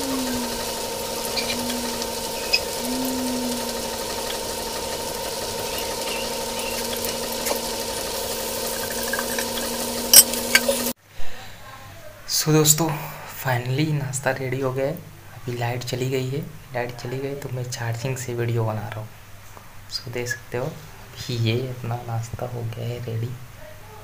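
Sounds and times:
low steady hum: 0.0 - 11.0
frying hiss: 0.0 - 24.0.

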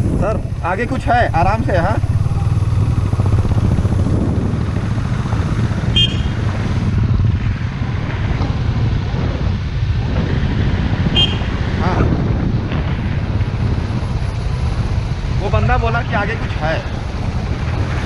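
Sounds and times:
motorcycle engine throbbing: 0.0 - 18.0
short high vehicle horn beep: 5.9 - 6.4, 11.2 - 11.5.

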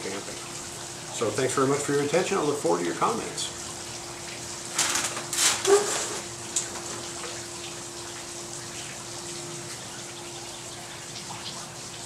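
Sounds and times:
chair scraping: 4.7 - 6.9
chair click: 4.8 - 6.2.

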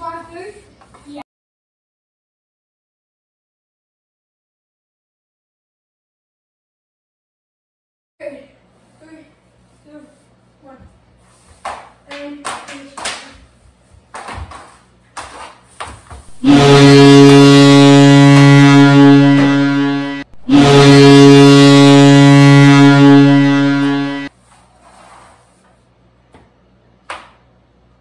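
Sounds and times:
goal horn blasts: 16.3 - 24.3.

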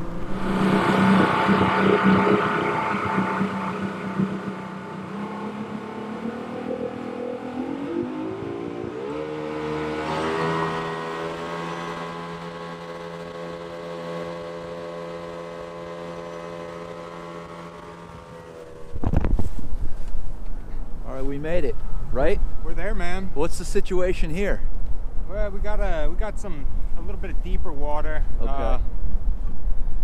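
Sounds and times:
jet boat engine running: 0.0 - 21.0.

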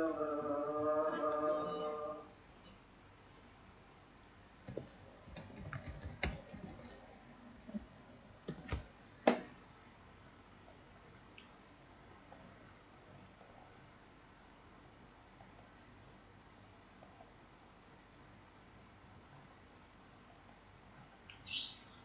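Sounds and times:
computer keyboard typing: 4.6 - 7.1, 8.5 - 8.8.

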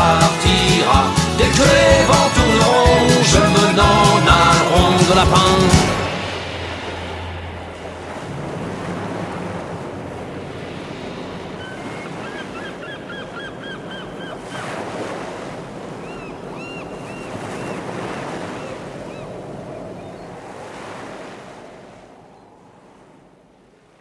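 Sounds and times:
sea waves surging: 0.0 - 24.0
gull calls: 11.6 - 14.8, 16.0 - 19.3.

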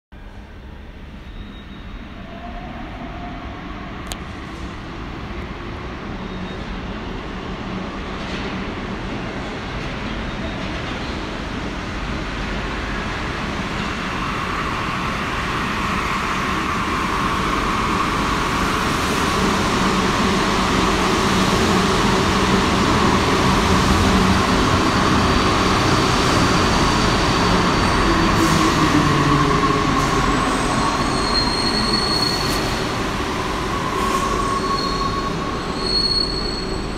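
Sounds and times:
high brake squeal: 1.2 - 2.6, 25.2 - 36.9
train running noise: 4.0 - 36.9.

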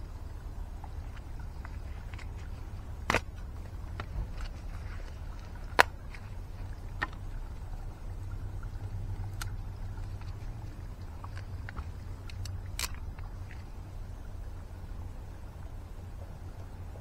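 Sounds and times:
steady low rumble: 0.0 - 17.0.

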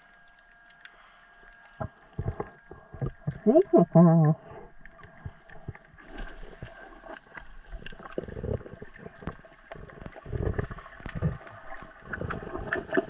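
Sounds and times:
underwater swishing rumbles: 1.6 - 13.0
stones clicking underwater: 5.0 - 13.0.

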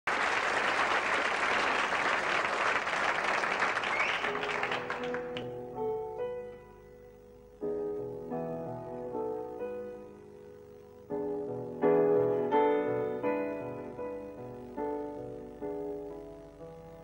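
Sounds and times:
audience applause: 0.1 - 5.6
slow piano notes and chords: 4.3 - 17.0.

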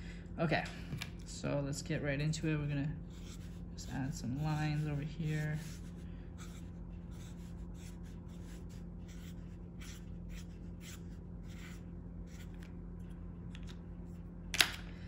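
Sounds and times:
steady low hum: 0.0 - 15.0
pen scratching on paper: 3.1 - 12.7.

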